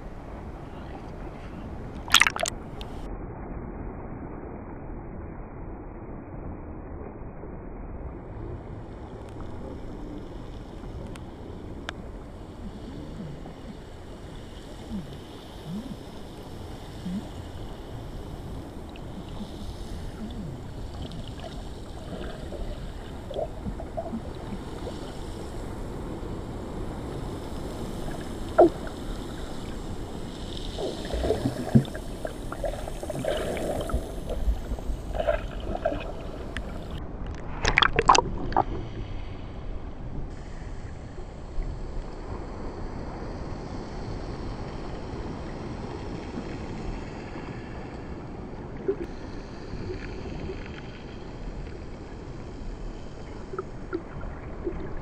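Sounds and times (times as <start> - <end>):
underwater rush of water: 0.1 - 3.2, 7.9 - 55.0
bubbling underwater: 2.0 - 2.6, 12.6 - 14.2, 18.9 - 25.0, 28.0 - 29.8, 30.8 - 37.0, 37.6 - 38.9.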